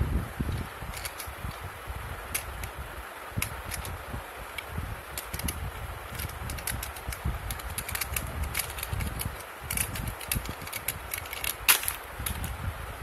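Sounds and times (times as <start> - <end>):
plastic toys clicking and rattling: 0.9 - 1.6, 2.3 - 2.8, 3.4 - 12.5.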